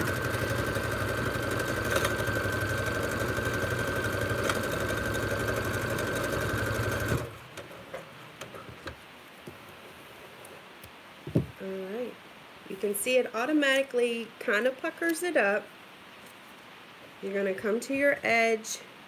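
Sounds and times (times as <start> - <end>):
electric sewing machine stitching: 0.0 - 7.7.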